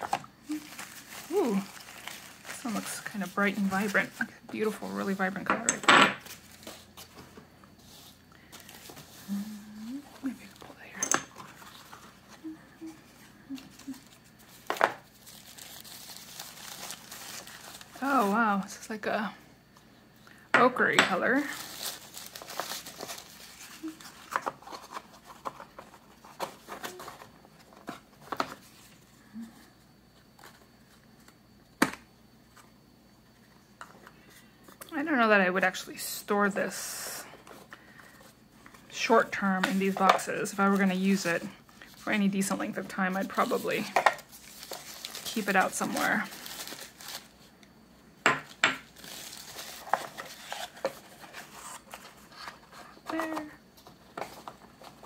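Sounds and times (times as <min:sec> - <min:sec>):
tissue paper rustling: 0:00.0 - 0:05.3, 0:06.2 - 0:10.8, 0:11.4 - 0:18.8, 0:21.3 - 0:29.5, 0:39.4 - 0:47.5, 0:48.9 - 0:55.0.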